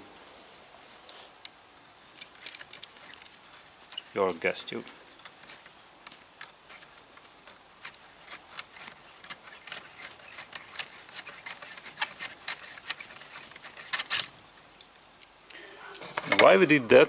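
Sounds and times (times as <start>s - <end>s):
metal tube unscrewing with clicks: 2.2s - 4.2s, 5.1s - 15.3s.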